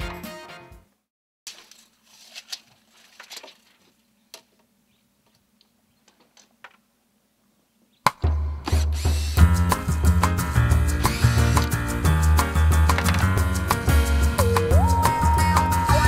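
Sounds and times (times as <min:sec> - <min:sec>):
tape measure clicks and rattles: 0:12.9 - 0:13.4.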